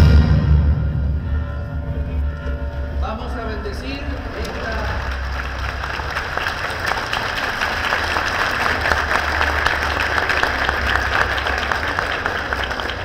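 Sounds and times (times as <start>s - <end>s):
crowd applauding: 3.7s - 13.0s.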